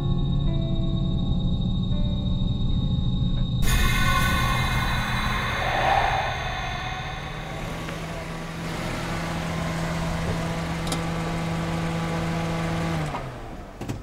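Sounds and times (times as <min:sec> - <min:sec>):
engine switching off: 0:03.6 - 0:14.0
car engine idling: 0:03.7 - 0:14.0.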